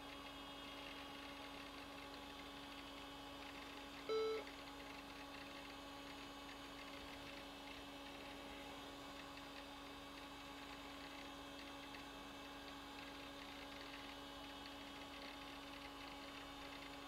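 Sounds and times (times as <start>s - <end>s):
electrical hum: 0.0s - 17.0s.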